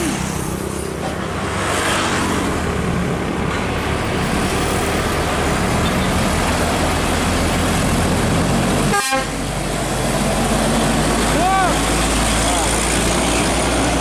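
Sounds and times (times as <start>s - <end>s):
tyre and road noise: 0.0s - 14.0s
truck diesel engine running: 2.8s - 14.0s.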